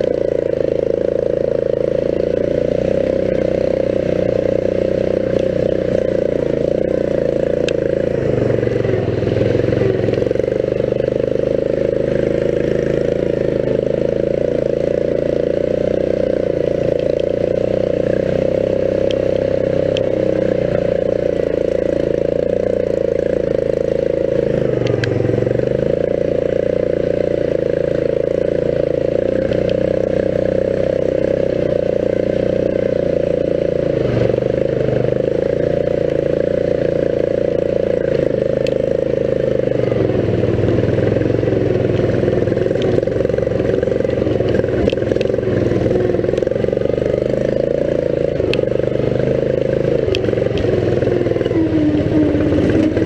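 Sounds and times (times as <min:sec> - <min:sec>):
riding lawn mower engine: 0:00.0 - 0:53.0.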